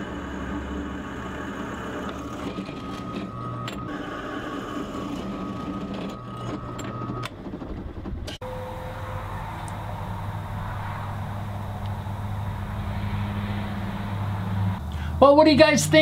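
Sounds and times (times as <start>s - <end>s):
drill bit whine: 0.0s - 7.3s
drill press motor hum: 0.0s - 14.8s.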